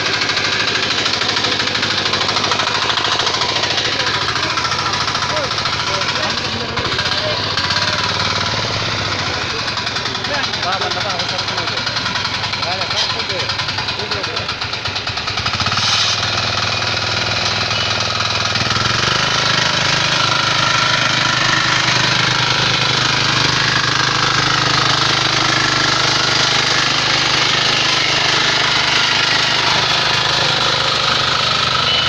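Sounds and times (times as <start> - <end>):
diesel tiller engine chugging: 0.0 - 32.0
tines churning stony soil: 15.6 - 16.5, 18.7 - 32.0.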